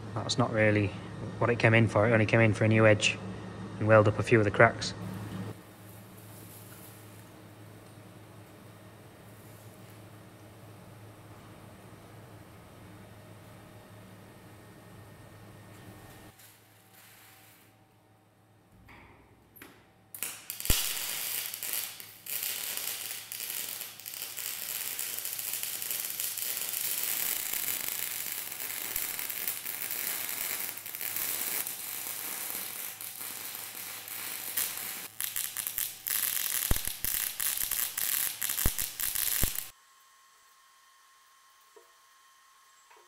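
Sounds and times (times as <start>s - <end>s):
welding arc crackling and hissing: 5.6s - 7.4s, 20.2s - 39.8s
sharp welding pops: 19.6s - 39.7s.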